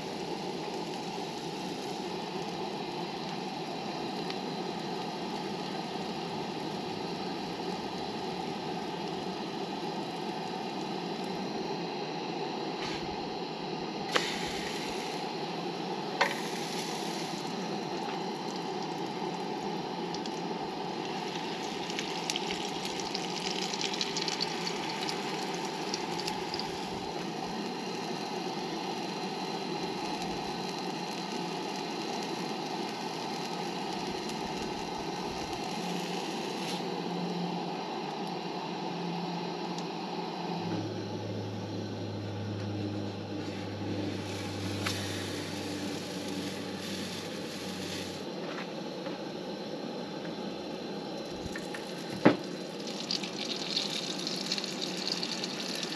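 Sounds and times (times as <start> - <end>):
pancake batter sizzling: 0.0 - 11.7, 14.1 - 36.9, 43.4 - 48.4, 51.0 - 55.9
camp stove burner hissing: 0.0 - 42.2, 42.9 - 55.9.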